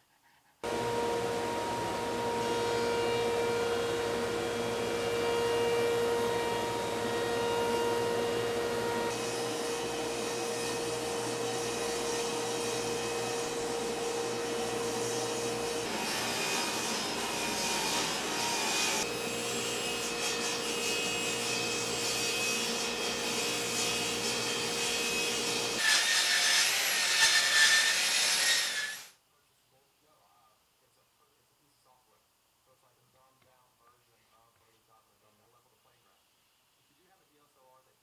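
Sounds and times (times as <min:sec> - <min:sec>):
table saw whine: 0:00.6 - 0:29.1
saw cutting through wood: 0:00.6 - 0:29.2.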